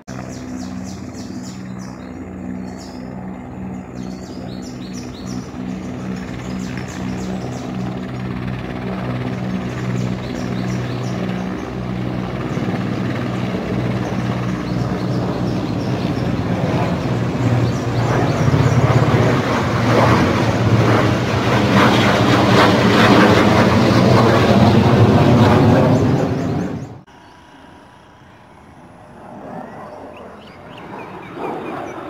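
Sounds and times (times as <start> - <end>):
helicopters flying overhead: 0.0 - 32.0.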